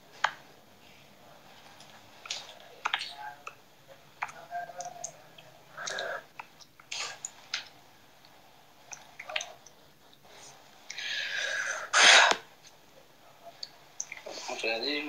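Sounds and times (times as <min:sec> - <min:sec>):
steady hiss: 0:00.0 - 0:15.0
mouth noises: 0:02.2 - 0:07.7.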